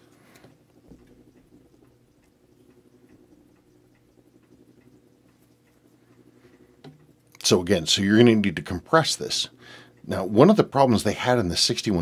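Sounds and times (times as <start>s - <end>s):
faint steady hum: 0.0s - 12.0s
faint small ticks: 0.1s - 7.5s.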